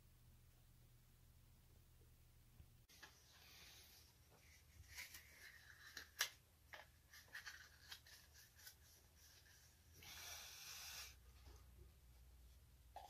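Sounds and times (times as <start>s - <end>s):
photo paper rustling and crackling: 2.9s - 9.8s.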